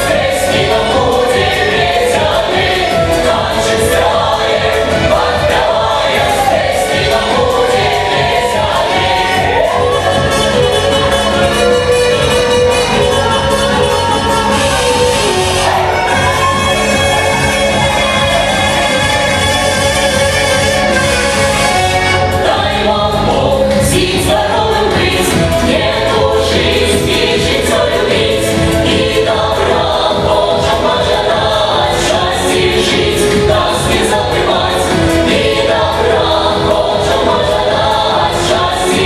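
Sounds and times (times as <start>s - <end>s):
folk band playing: 0.0s - 39.0s
voices singing together: 0.0s - 39.0s.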